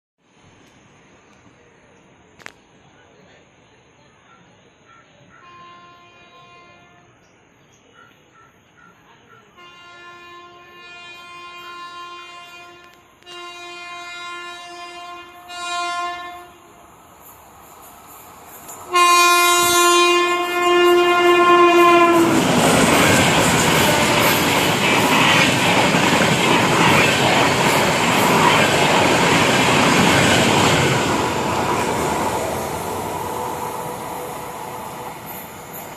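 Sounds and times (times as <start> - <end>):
train horn blasts: 5.3 - 7.2, 9.6 - 16.8, 18.9 - 24.6
train coaches rushing past: 13.3 - 35.9.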